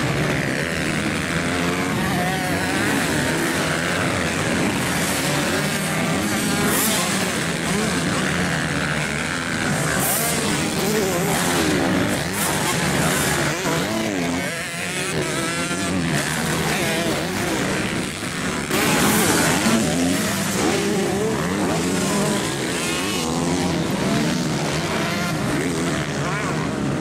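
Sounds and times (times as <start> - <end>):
motocross bike engines revving: 0.0 - 27.0.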